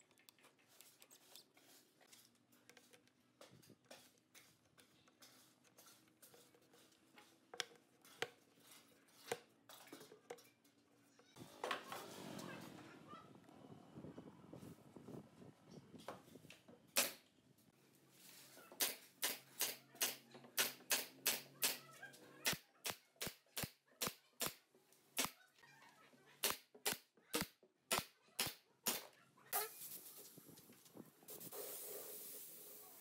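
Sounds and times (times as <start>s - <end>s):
nail gun firing: 17.0s - 17.2s, 18.8s - 21.8s, 26.4s - 29.1s
air hissing: 31.3s - 33.0s.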